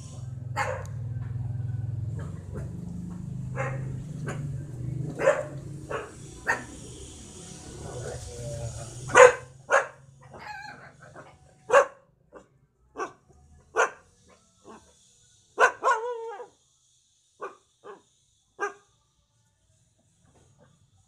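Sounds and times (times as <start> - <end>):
puppy barking: 0.6 - 1.0, 3.4 - 6.8, 9.1 - 14.0, 15.6 - 16.5, 17.4 - 18.0, 18.6 - 18.9
puppy whining: 10.3 - 11.2.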